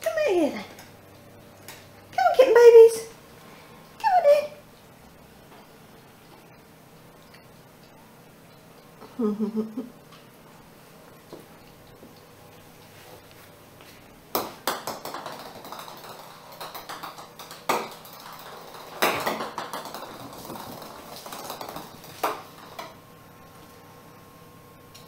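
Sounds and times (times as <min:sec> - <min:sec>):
ball bouncing on tiled floor: 0:14.3 - 0:23.0.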